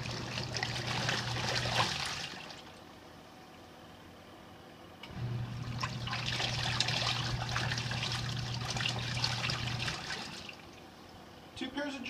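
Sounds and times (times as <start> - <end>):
water splashing and sloshing: 0.0 - 2.9, 5.5 - 11.2
washing machine motor hum: 0.0 - 11.6.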